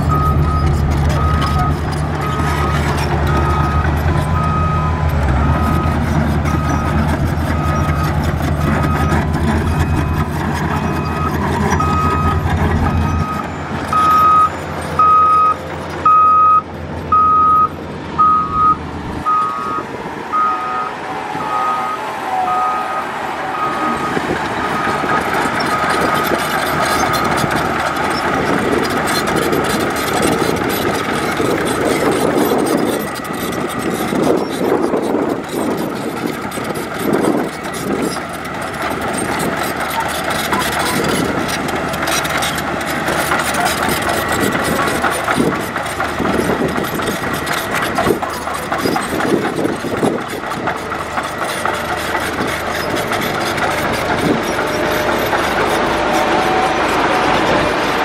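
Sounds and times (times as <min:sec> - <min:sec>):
reversing alarm beeping: 0:00.0 - 0:27.6
diesel engine rumble: 0:00.0 - 0:58.0.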